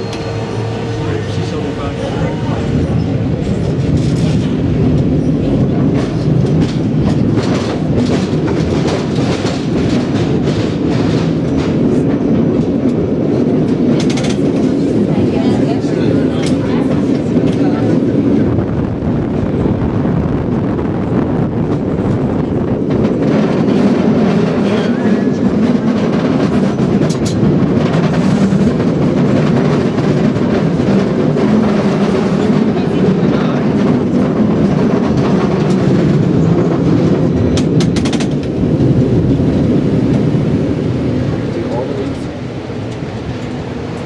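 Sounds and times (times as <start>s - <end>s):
cable car rumbling on rails: 0.0s - 44.0s.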